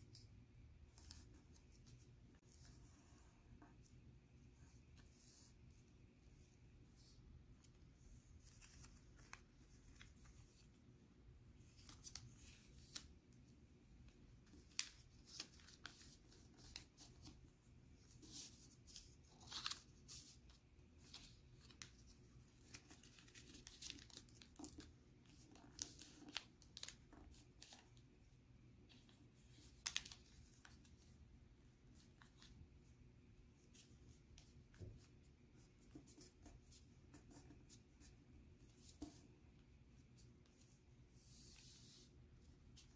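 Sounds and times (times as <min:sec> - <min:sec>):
paper rustling and crinkling: 0:14.4 - 0:28.0, 0:28.9 - 0:31.2.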